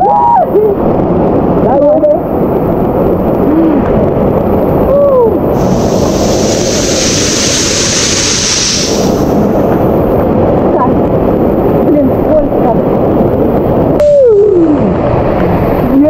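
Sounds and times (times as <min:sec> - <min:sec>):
waterfall rushing water: 0:05.6 - 0:09.5
water splashing hiss: 0:05.6 - 0:09.6.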